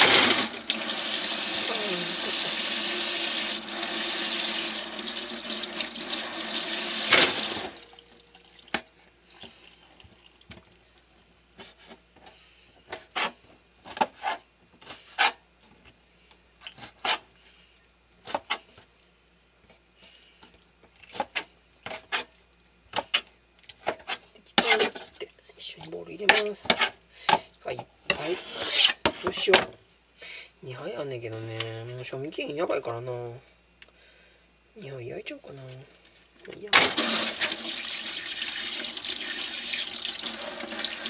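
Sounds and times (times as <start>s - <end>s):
tap water running: 0.0s - 8.9s, 36.8s - 41.0s.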